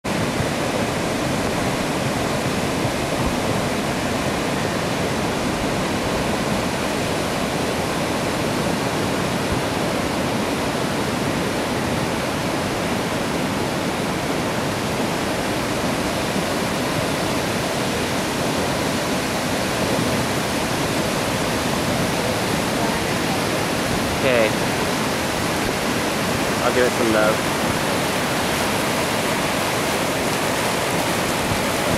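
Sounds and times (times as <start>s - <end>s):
ocean surf roaring: 0.0s - 31.9s.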